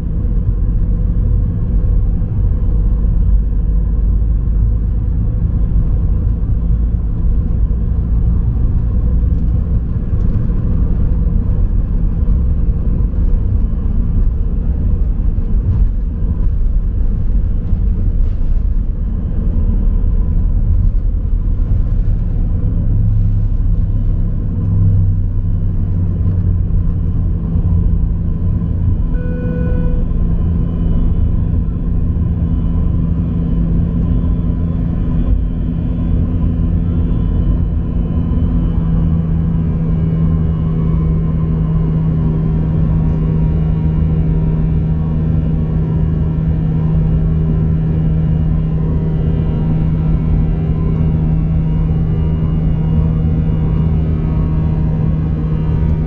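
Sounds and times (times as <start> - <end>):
jet engine noise: 0.0 - 56.0
runway rumble: 0.0 - 56.0
brief tone: 28.7 - 38.8, 48.6 - 54.6.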